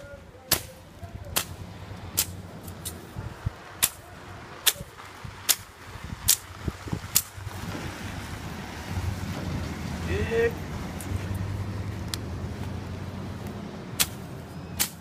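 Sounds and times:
machete chopping grass: 0:00.5 - 0:03.0, 0:03.8 - 0:04.0, 0:05.5 - 0:05.7, 0:06.3 - 0:06.5, 0:07.1 - 0:07.3, 0:14.0 - 0:15.0.

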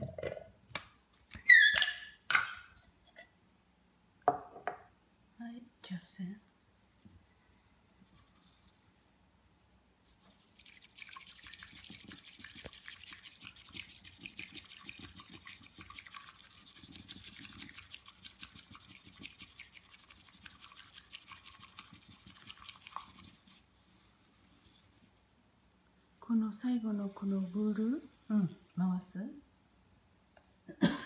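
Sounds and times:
whisk swishing in tea bowl: 0:10.0 - 0:25.3, 0:26.4 - 0:28.8.

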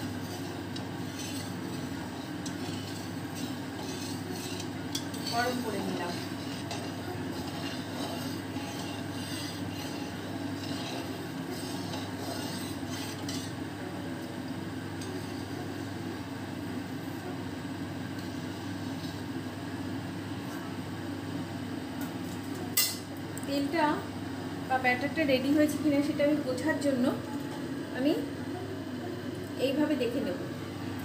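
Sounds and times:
batter sizzling in hot oil: 0:00.0 - 0:13.8.

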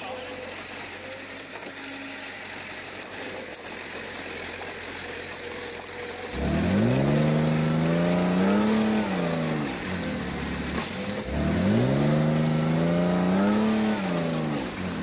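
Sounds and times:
bulldozer diesel engine revving: 0:00.0 - 0:15.0.

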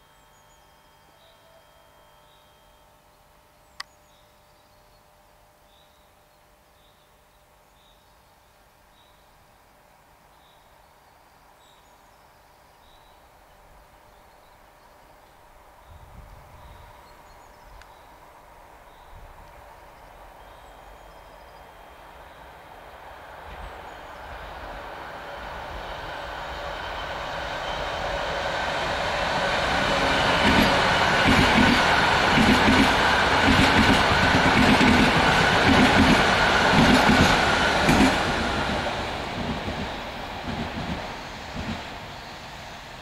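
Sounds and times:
electric train passing at speed: 0:15.4 - 0:43.0.

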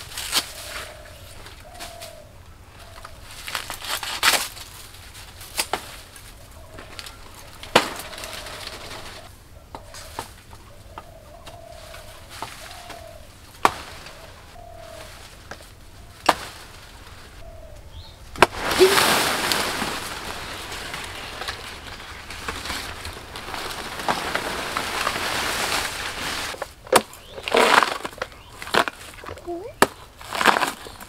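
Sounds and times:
dove cooing: 0:06.4 - 0:15.4
loud rustling: 0:18.4 - 0:26.8.

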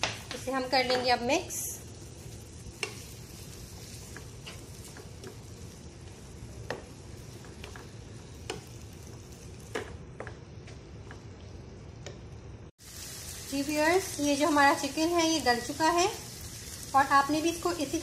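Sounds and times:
spatula tapping a pan: 0:00.0 - 0:01.2, 0:02.8 - 0:03.1, 0:04.0 - 0:05.5, 0:06.6 - 0:08.8, 0:09.6 - 0:10.4
meat sizzling in a frying pan: 0:00.0 - 0:09.7, 0:12.8 - 0:18.0.

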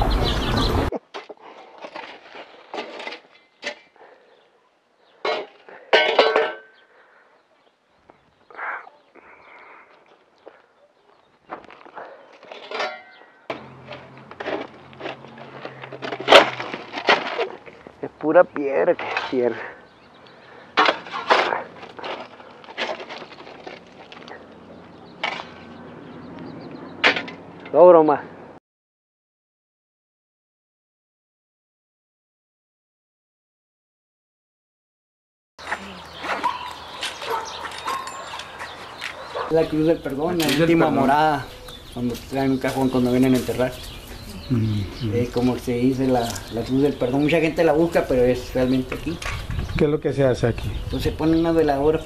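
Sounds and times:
dirt and gravel pattering: 0:00.1 - 0:03.9, 0:08.0 - 0:26.5, 0:35.6 - 0:44.3
metal shovel scraping stony soil: 0:01.1 - 0:04.0, 0:12.4 - 0:18.0, 0:18.8 - 0:19.8, 0:20.8 - 0:24.4
digging tool clinking on concrete: 0:12.5 - 0:17.4.

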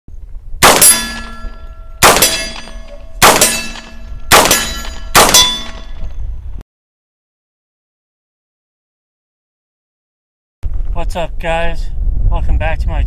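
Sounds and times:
rifle shots: 0:00.6 - 0:06.0
steel target clanging: 0:00.6 - 0:06.1.

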